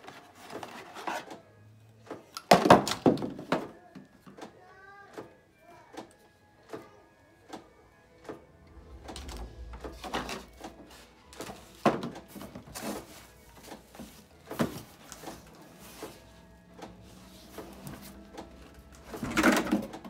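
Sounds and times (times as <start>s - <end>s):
cardboard and plastic rustling: 0.0s - 1.4s, 8.7s - 20.0s.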